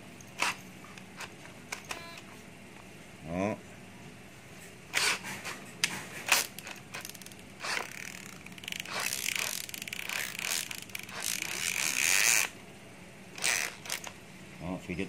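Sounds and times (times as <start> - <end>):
drill being handled clicks: 13.4 - 14.2.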